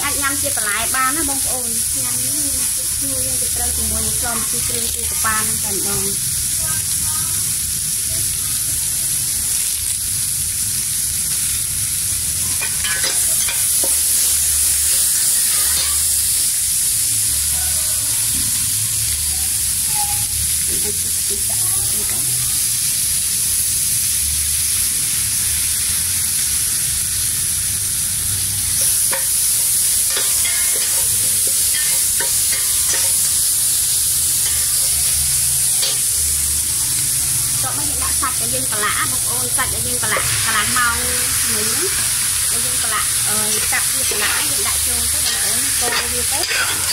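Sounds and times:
herb paste sizzling in a pot: 0:00.0 - 0:46.9
metal ladle scraping a pot: 0:45.2 - 0:46.9.

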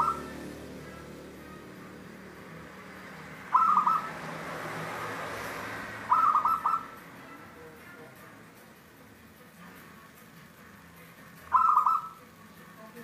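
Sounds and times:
dove cooing: 0:00.0 - 0:00.4, 0:03.5 - 0:04.2, 0:06.1 - 0:06.9, 0:11.5 - 0:12.2.

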